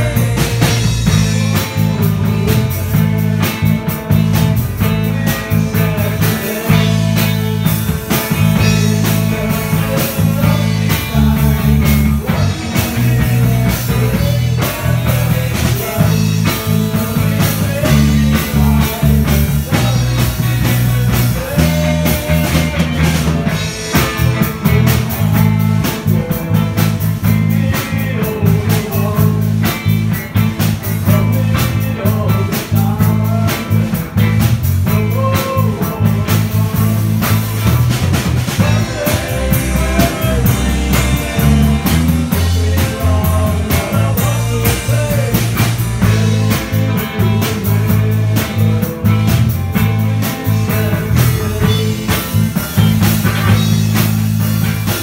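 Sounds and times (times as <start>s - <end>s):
bass line: 0.0s - 55.0s
electric guitars: 0.0s - 55.0s
steady drum beat: 0.0s - 55.0s.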